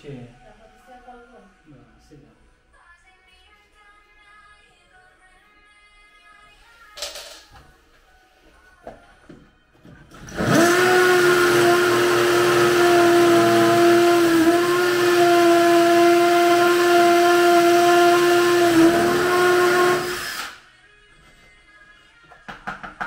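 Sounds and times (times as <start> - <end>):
electric motor whine: 10.2 - 20.6.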